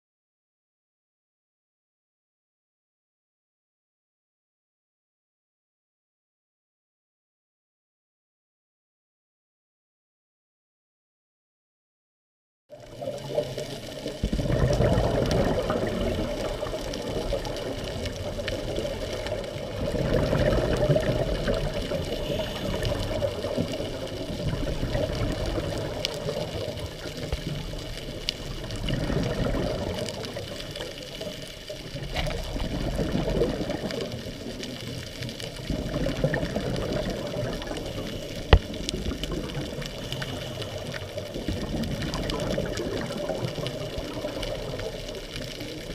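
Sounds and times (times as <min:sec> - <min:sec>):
muffled underwater background: 0:12.7 - 0:45.9
regulator exhaust bubbles: 0:12.9 - 0:30.8.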